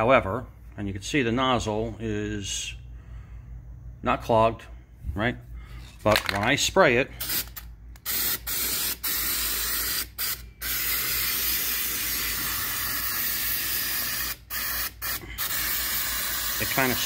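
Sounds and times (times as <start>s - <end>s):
aerosol can spraying: 7.2s - 17.0s.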